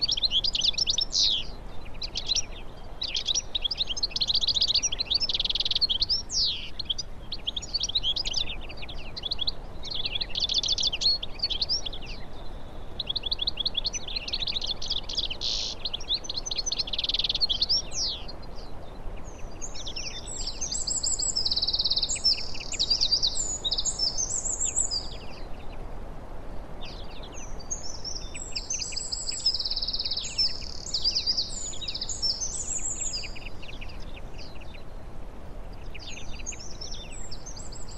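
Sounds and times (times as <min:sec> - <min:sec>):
faint background hiss: 0:00.0 - 0:37.9
songbirds twittering: 0:00.0 - 0:37.9.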